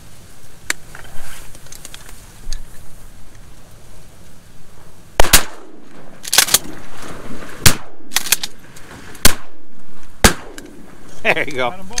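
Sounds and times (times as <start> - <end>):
shotgun blasts: 5.2 - 6.8, 7.5 - 8.5, 9.2 - 11.0.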